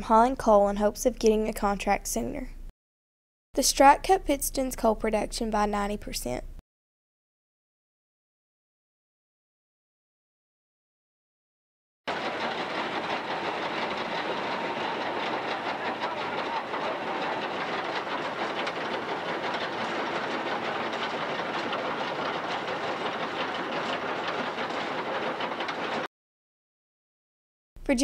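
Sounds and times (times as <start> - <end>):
mining machinery clattering: 12.1 - 26.1.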